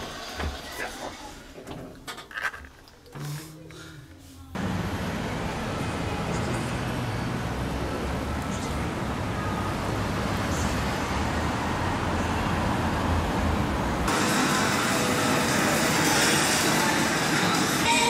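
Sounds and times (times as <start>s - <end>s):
vehicle and road rumble: 4.5s - 14.2s.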